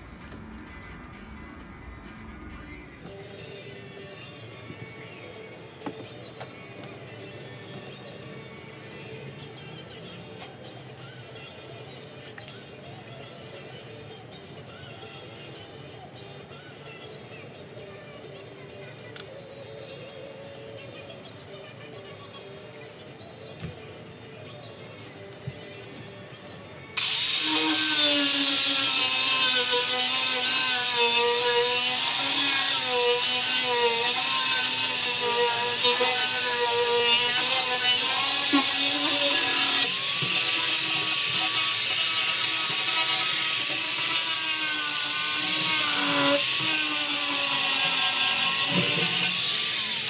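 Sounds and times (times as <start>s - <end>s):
power grinder grinding fiberglass: 27.0s - 50.0s.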